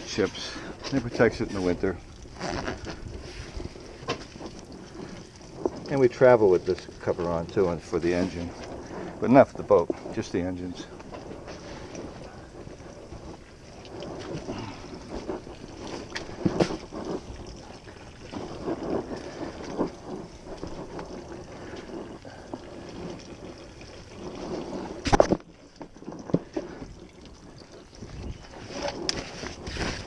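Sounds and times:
fabric cover rustling and rubbing: 0:02.4 - 0:05.1.

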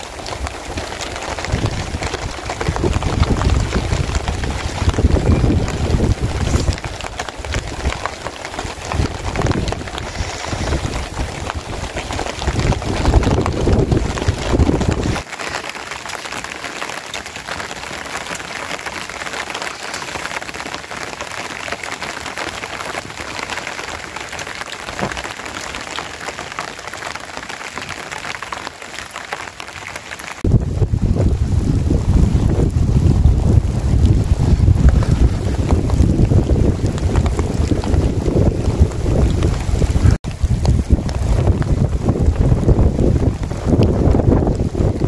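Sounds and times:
rain pattering on a tarp: 0:00.0 - 0:45.0
gusty wind buffeting microphone: 0:00.4 - 0:15.2, 0:30.4 - 0:45.0.

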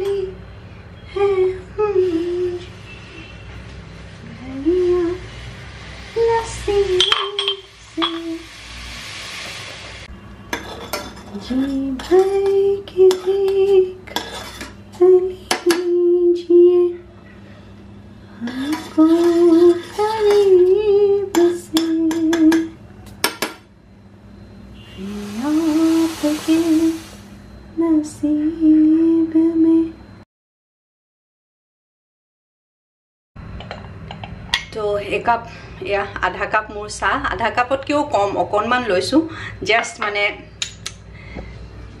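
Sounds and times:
metal spoon clinking in saucepan: 0:07.0 - 0:08.2
hiss: 0:07.8 - 0:10.1, 0:25.0 - 0:27.4.

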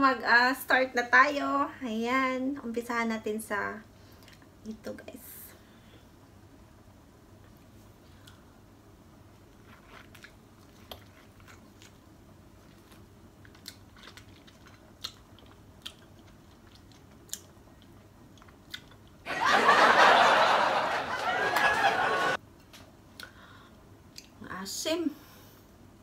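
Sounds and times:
mouth chewing lemon: 0:09.4 - 0:19.2.

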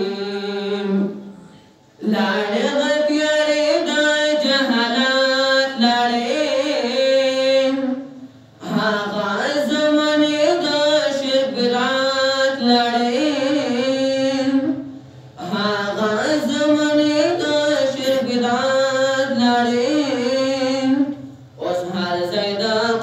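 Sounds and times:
man chanting: 0:02.0 - 0:08.0, 0:08.6 - 0:23.0.

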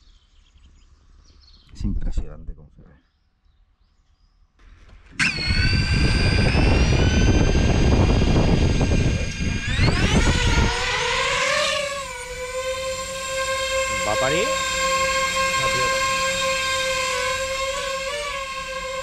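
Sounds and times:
drone motors whining: 0:04.6 - 0:19.0.

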